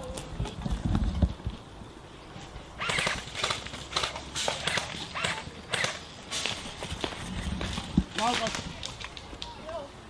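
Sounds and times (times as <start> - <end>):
footsteps on rough ground: 2.9 - 9.6.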